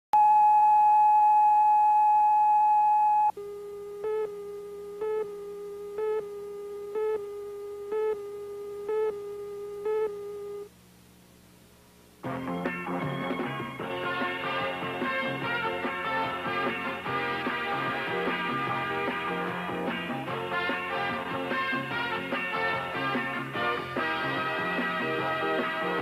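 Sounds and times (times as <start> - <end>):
short beeps: 0.2 - 10.7
lower quiet steady tone: 0.2 - 11.8
faint tape hiss: 0.2 - 26.0.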